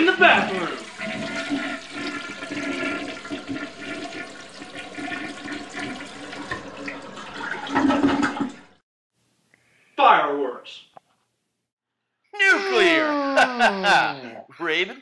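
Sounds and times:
toilet flushing: 0.0s - 8.8s.

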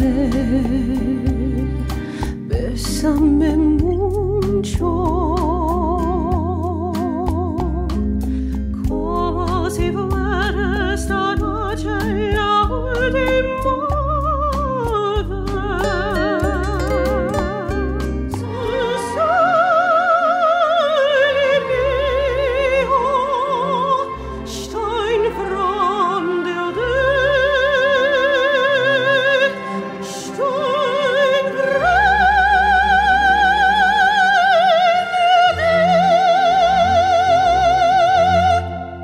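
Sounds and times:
woman singing operatically: 0.0s - 1.7s, 2.3s - 7.9s, 8.8s - 39.0s
musical backing: 0.0s - 39.0s.

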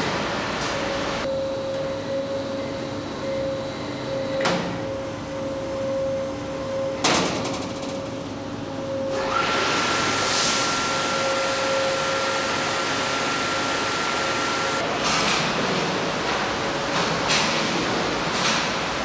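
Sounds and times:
steady machine hum: 0.0s - 15.0s.

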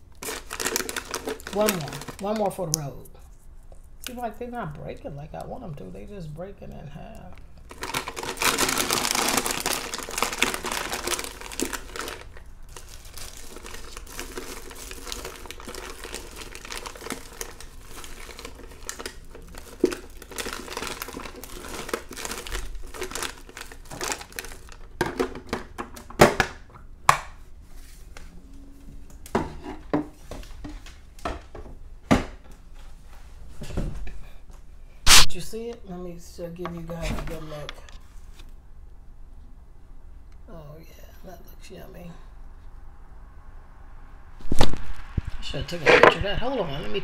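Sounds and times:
pecans crackling when broken: 0.0s - 4.2s, 7.2s - 27.4s.

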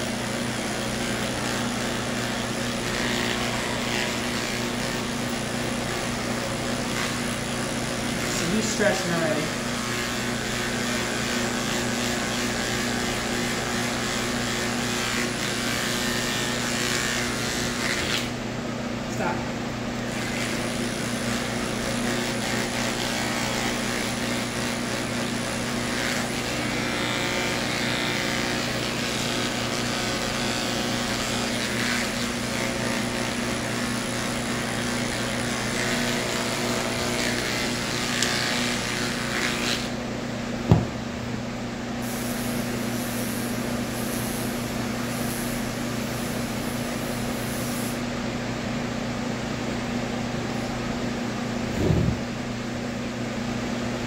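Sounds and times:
clippers cutting hair hiss: 0.0s - 18.4s, 42.0s - 48.0s
electric clippers humming: 0.0s - 18.4s, 20.0s - 40.0s.

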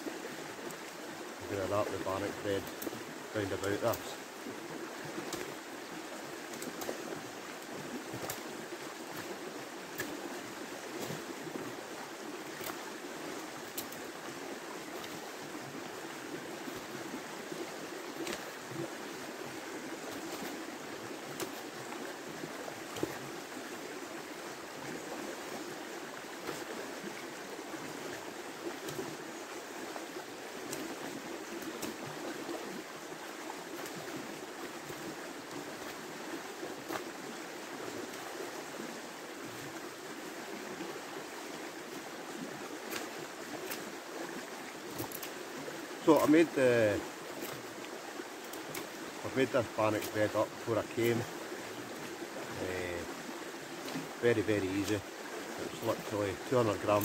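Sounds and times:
river flowing: 0.0s - 57.0s
faint clicks: 44.9s - 45.4s.

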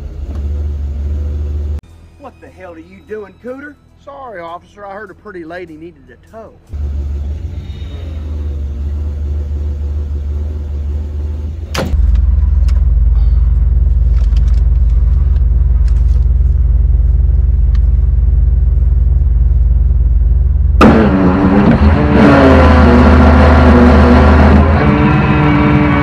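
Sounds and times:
engine idling with low rumble: 6.7s - 21.0s
loud sound with shifting pitch: 20.7s - 26.0s.

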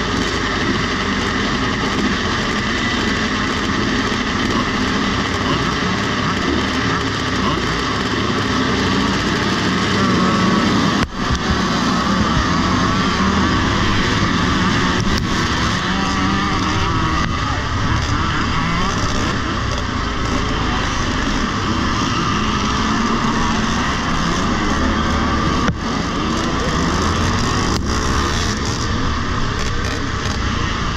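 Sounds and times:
motocross bikes revving and racing: 0.0s - 30.9s.

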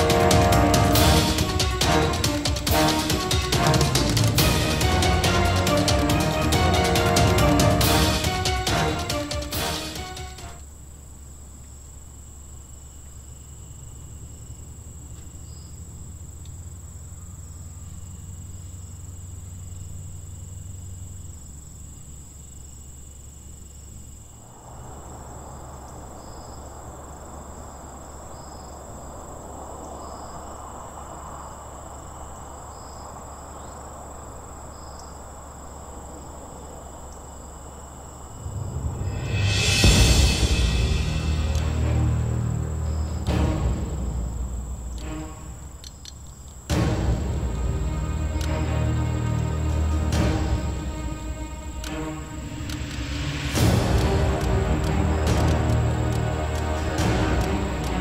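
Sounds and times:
crickets trilling: 0.0s - 58.0s
low steady rumble: 38.2s - 58.0s.

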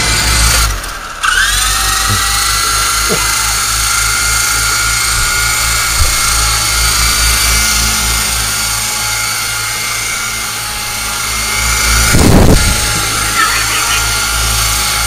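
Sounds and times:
toy helicopter motors whining: 0.0s - 15.0s
loud rushing burst of noise: 10.6s - 15.0s.

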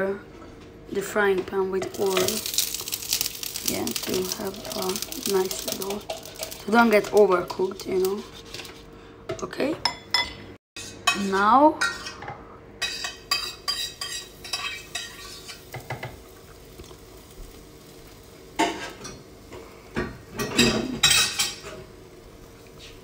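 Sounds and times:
spoon clinking and scraping bowl: 1.9s - 8.8s, 12.8s - 16.2s
batter sizzling in pan: 1.9s - 9.0s, 12.8s - 23.0s.

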